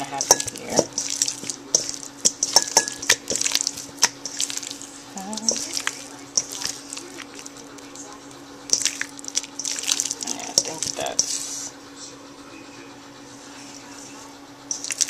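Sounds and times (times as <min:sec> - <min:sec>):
hands rubbing meat in metal bowl: 0:00.0 - 0:07.9, 0:08.7 - 0:11.7, 0:14.7 - 0:15.0
wet smacks of meat: 0:08.7 - 0:11.0.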